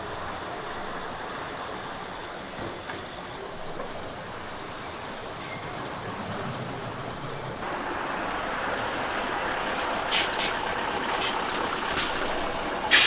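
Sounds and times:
bus engine: 0:00.0 - 0:13.0
air brakes hissing: 0:09.7 - 0:13.0.

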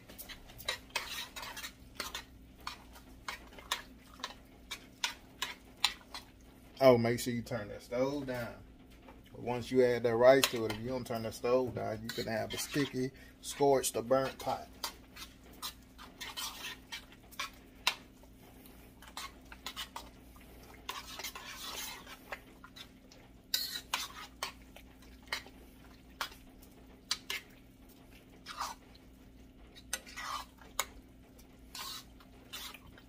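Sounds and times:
spoon scraping and knocking pot: 0:00.1 - 0:06.3, 0:10.3 - 0:18.1, 0:19.0 - 0:20.2, 0:20.8 - 0:22.9, 0:23.5 - 0:24.6, 0:31.7 - 0:33.0.

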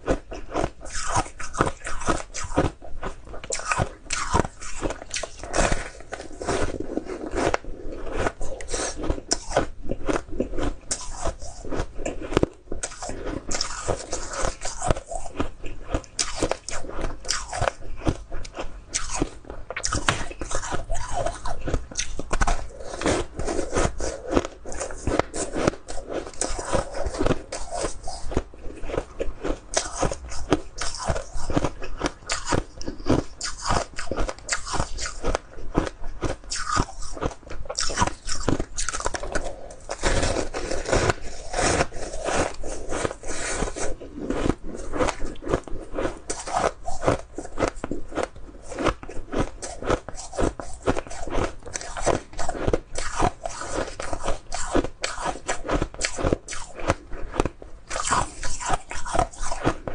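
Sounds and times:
crunching frozen ice: 0:03.5 - 0:18.2, 0:18.9 - 0:59.7.

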